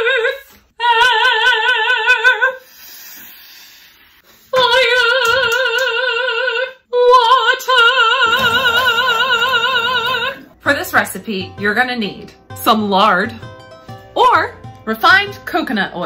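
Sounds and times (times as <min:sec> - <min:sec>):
soprano singing operatic notes: 0:04.5 - 0:16.0.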